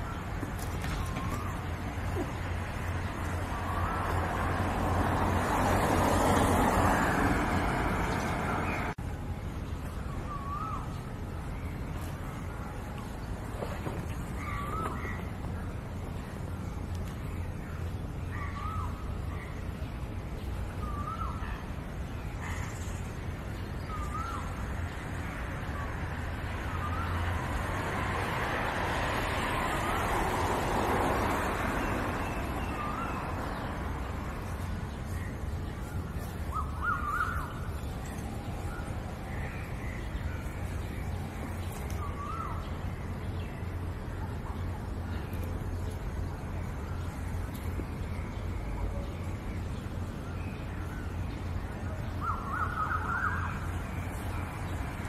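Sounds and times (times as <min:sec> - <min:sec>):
bird calling: 0:13.7 - 0:15.4, 0:36.2 - 0:40.5.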